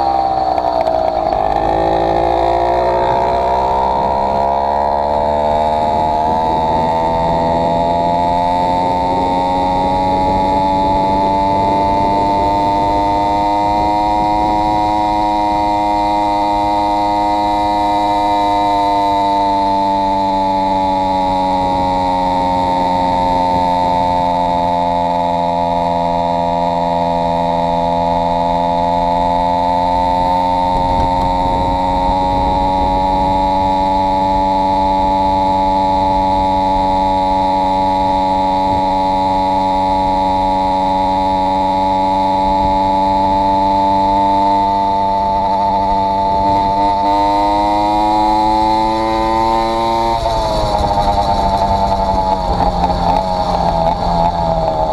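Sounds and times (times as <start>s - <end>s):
two-stroke engine running: 0.0s - 54.9s.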